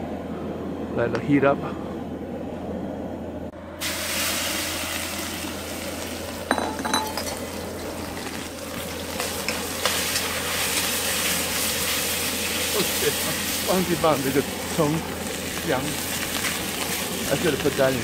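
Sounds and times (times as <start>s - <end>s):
gas burner rushing: 0.0s - 18.0s
shrimp sizzling in hot oil: 3.8s - 18.0s.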